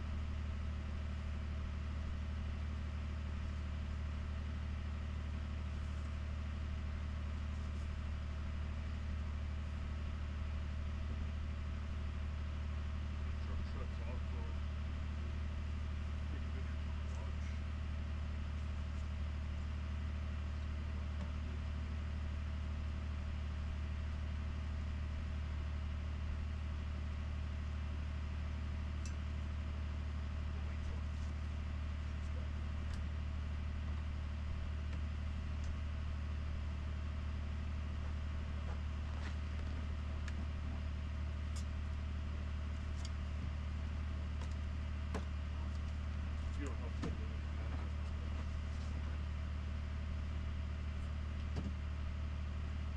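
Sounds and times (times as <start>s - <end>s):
car engine idling: 0.0s - 52.9s.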